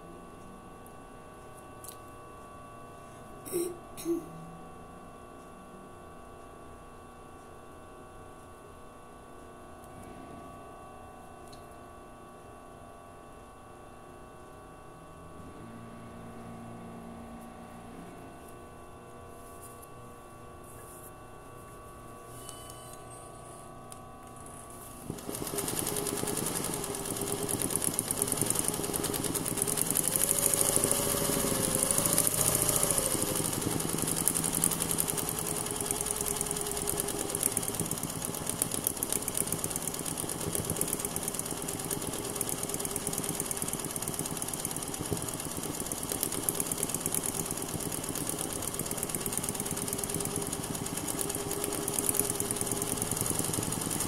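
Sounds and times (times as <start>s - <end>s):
sewing machine running fast: 25.0s - 54.0s.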